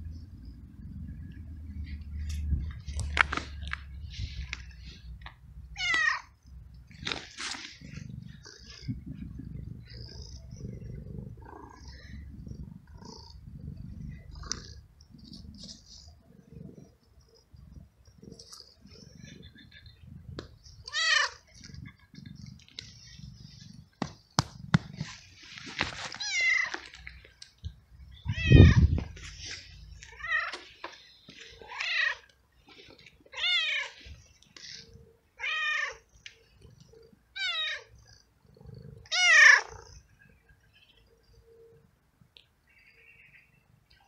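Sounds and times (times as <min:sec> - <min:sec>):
cat meowing loudly: 0:05.8 - 0:06.3, 0:28.2 - 0:29.0, 0:39.1 - 0:39.7.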